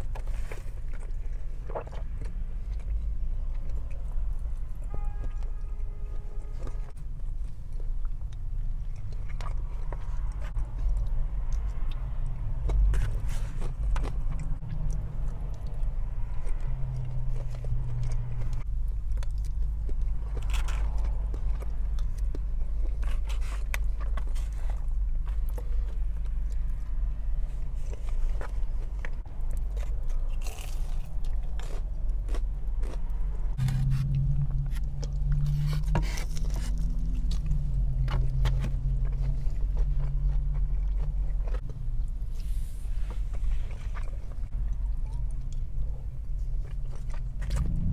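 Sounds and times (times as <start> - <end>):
close chewing food: 0.0 - 47.9
low hum: 0.0 - 47.9
steady low rumble: 0.0 - 47.9
crunchy bites: 27.9 - 41.9.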